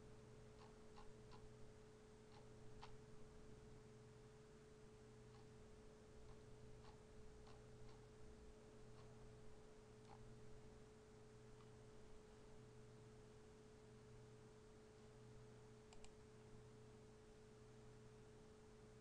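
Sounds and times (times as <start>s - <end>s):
faint steady hum: 0.0s - 19.0s
faint ticks: 0.5s - 1.5s, 2.3s - 3.0s, 6.2s - 8.2s, 8.9s - 9.2s, 10.0s - 10.3s, 15.9s - 16.2s.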